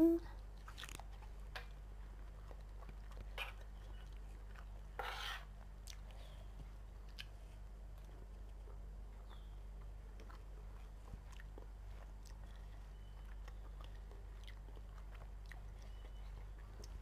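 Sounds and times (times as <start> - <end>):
low hum: 0.0 - 0.4
person chewing: 0.6 - 1.1, 10.2 - 17.0.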